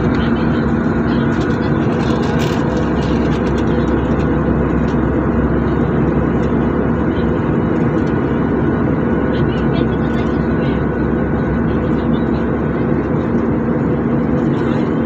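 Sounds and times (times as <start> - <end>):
airliner engines droning: 0.0 - 15.0
constant low hum: 0.0 - 15.0.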